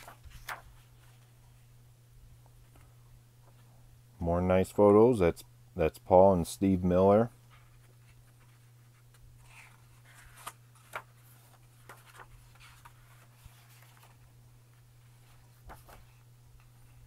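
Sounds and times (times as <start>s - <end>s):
book pages turning: 0.0s - 1.2s, 7.4s - 14.4s, 15.1s - 17.0s.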